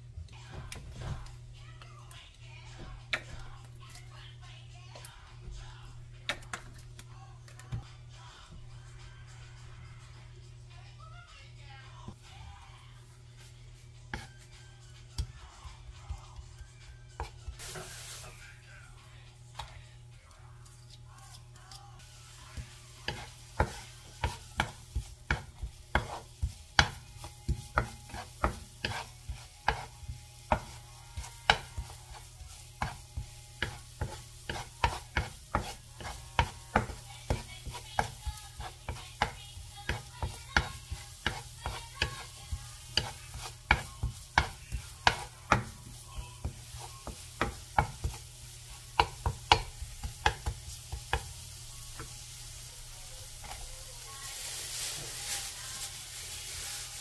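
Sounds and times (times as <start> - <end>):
light sizzle: 17.2 - 57.0
spatula scraping frying pan: 22.0 - 52.2.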